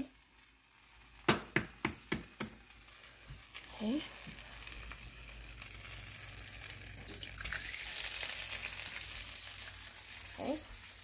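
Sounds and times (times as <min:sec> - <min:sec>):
egg sizzling in frying pan: 0:00.0 - 0:11.0.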